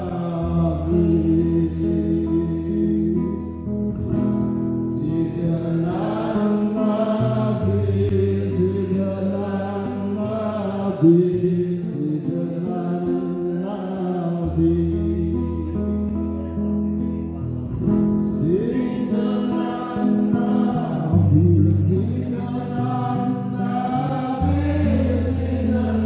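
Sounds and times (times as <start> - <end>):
devotional chanting: 0.0 - 3.7, 4.8 - 16.1, 18.2 - 26.0.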